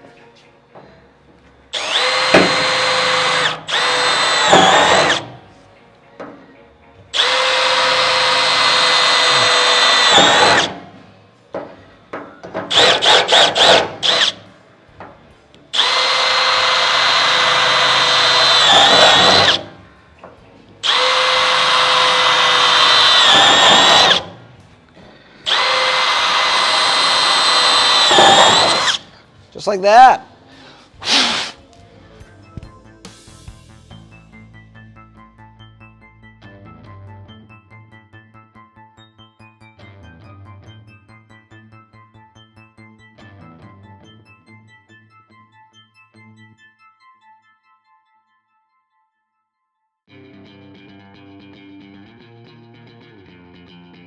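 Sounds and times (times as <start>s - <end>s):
cordless drill whining: 1.8s - 5.4s, 7.2s - 10.8s, 12.7s - 14.4s, 15.8s - 19.8s, 20.8s - 24.4s, 25.4s - 29.2s
drill trigger stutter: 1.8s - 5.4s, 7.2s - 10.9s, 12.7s - 14.4s, 15.8s - 19.8s, 20.8s - 24.4s, 25.5s - 29.1s.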